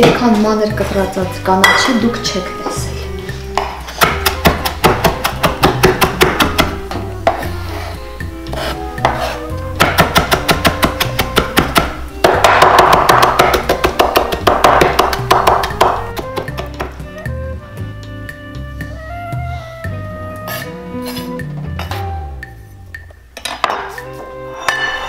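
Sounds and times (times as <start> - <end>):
background music: 0.0 - 25.0
knife chopping on wooden board: 3.6 - 7.5, 8.5 - 17.0.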